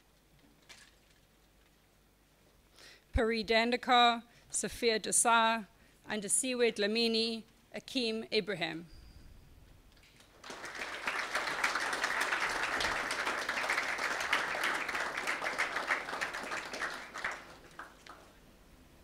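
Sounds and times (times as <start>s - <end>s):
audience applauding: 10.4s - 18.4s.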